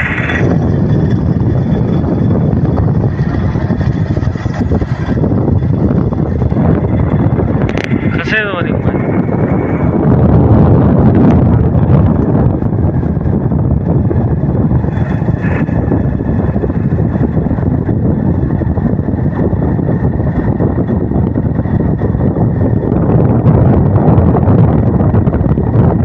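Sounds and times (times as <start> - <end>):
vehicle rumble: 0.0 - 26.0
wind buffeting microphone: 0.0 - 26.0.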